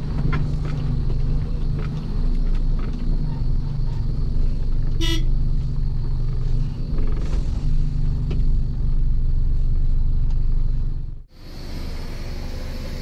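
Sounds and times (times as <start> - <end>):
truck diesel engine running: 0.0 - 13.0
horn toot: 5.0 - 5.3.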